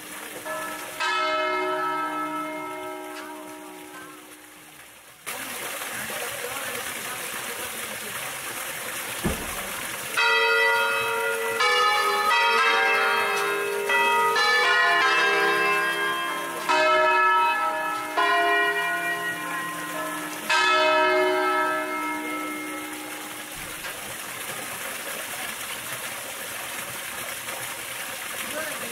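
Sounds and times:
church bells ringing: 0.0s - 4.7s, 10.1s - 23.9s.

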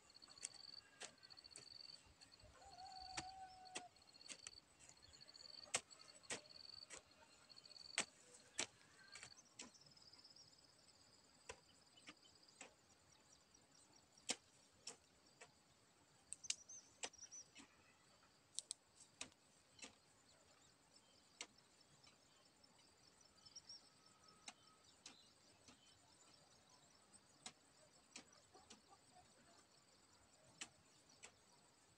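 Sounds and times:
hoe blade chopping soil: 0.3s - 1.7s, 3.1s - 7.1s, 7.8s - 9.7s.

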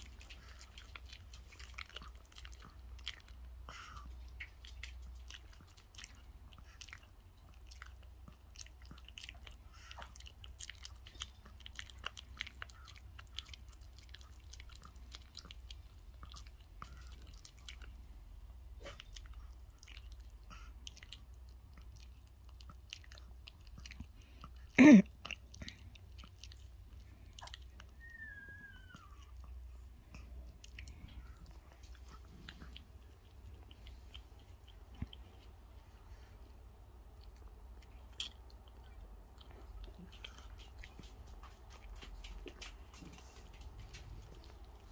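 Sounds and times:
dog chewing raw chicken: 0.0s - 28.1s.

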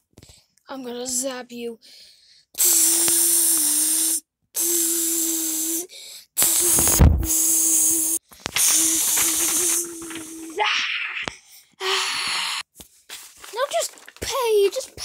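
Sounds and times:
electric buzz with crackling hiss: 6.4s - 10.4s
low thump: 6.8s - 7.3s.

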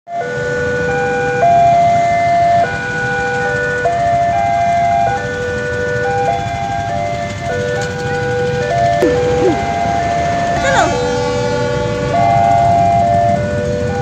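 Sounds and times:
electronic two-tone crossing chime: 9.0s - 9.8s.

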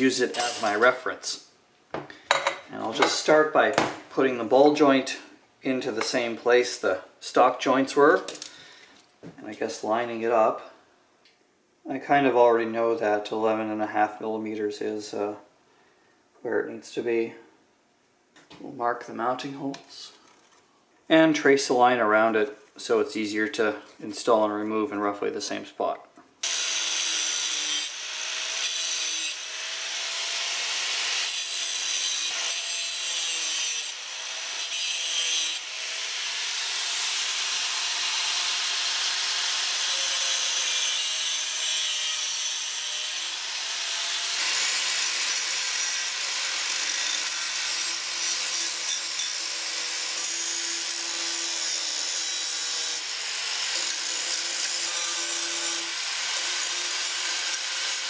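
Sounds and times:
angle grinder cutting steel: 26.4s - 58.0s.

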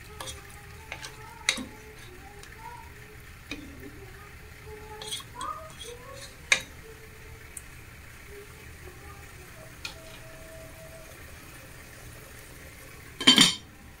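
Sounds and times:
sauce bubbling in a pot: 0.0s - 14.0s
clink against a pot: 13.2s - 13.7s.

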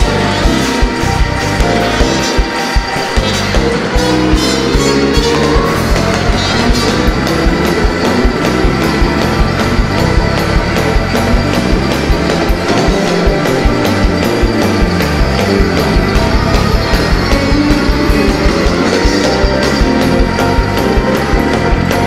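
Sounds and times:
fast drum beat: 0.0s - 22.0s
live band playing up-tempo music: 0.0s - 22.0s.

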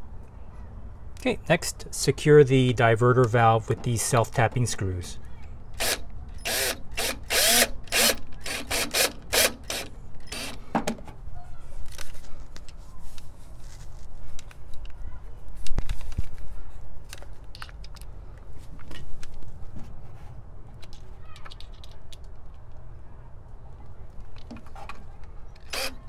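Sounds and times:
cordless drill driving screw: 5.8s - 10.6s, 25.6s - 26.0s.

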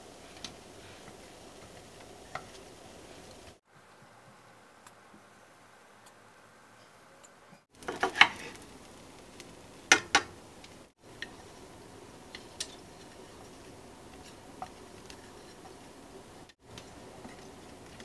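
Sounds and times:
utensils clicking on frying pan: 0.3s - 3.5s, 7.8s - 8.6s, 9.9s - 10.4s, 11.1s - 11.5s, 12.2s - 18.0s.

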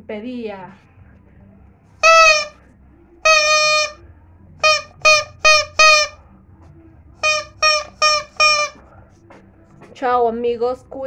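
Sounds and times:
rubber chicken toy squawking: 2.0s - 2.5s, 3.3s - 4.0s, 4.6s - 6.2s, 7.2s - 8.8s.

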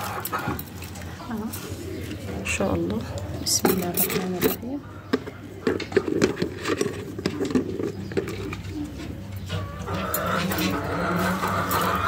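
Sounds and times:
pigeons cooing: 0.0s - 12.0s.

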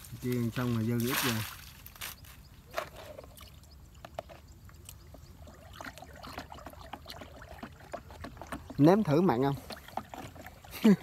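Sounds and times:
water sloshing: 2.7s - 11.0s.

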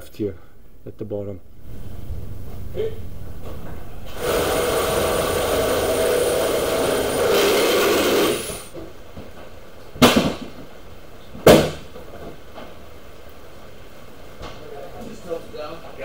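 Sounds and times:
power saw cutting metal: 4.1s - 8.7s.

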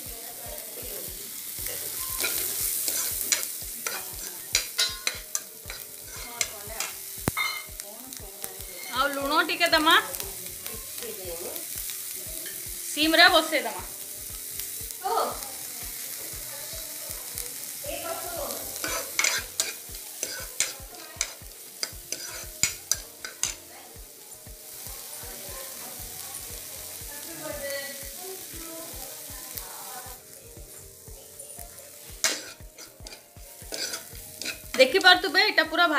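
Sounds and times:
vegetables sizzling in oil: 0.0s - 35.9s
ladle clicking against pan: 2.2s - 7.7s, 18.8s - 23.6s, 32.2s - 34.8s.

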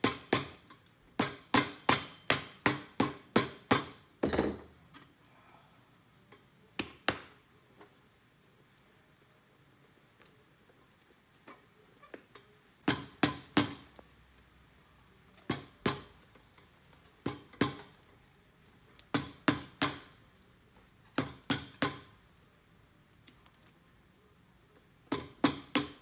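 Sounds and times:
hammer striking boot sole: 12.9s - 13.9s, 25.1s - 26.0s.

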